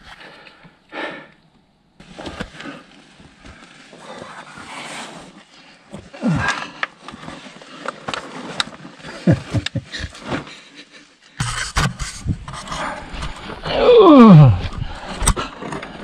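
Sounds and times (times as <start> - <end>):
scraping and rustling on rock: 2.0 - 13.7
man grunting: 13.6 - 14.9
man groaning: 13.6 - 15.0.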